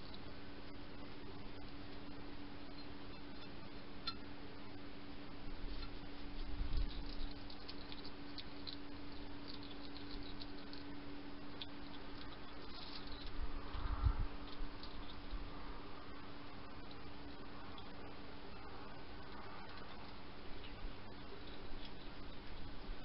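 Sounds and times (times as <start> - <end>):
hedgehog chewing: 5.5 - 23.0.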